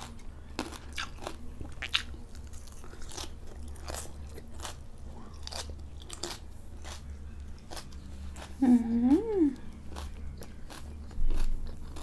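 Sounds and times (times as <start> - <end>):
chewing crisp carrot: 0.0 - 12.0
steady low hum: 0.0 - 12.0.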